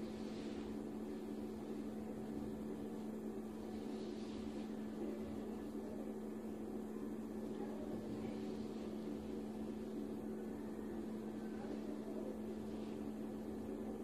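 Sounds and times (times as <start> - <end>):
machine hum: 0.0 - 14.0
faint soft rustle: 3.0 - 5.7.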